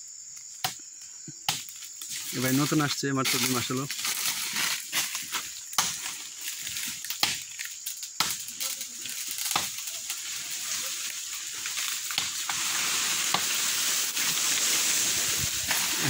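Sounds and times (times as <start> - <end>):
machete chopping tree trunk: 5.7 - 6.1, 7.2 - 7.5, 12.1 - 12.6.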